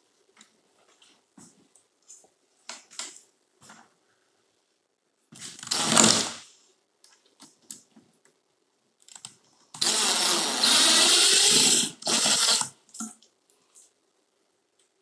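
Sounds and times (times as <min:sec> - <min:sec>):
cordless drill driving screw: 0:05.6 - 0:06.3, 0:09.8 - 0:12.7.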